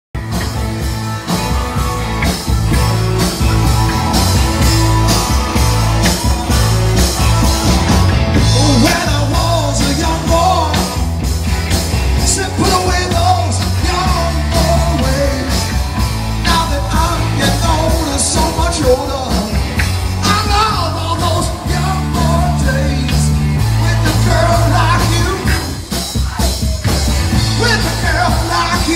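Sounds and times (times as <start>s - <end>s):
live rock band playing: 0.2s - 28.9s
person singing: 3.2s - 11.2s, 12.1s - 15.8s, 16.4s - 19.6s, 20.2s - 28.9s.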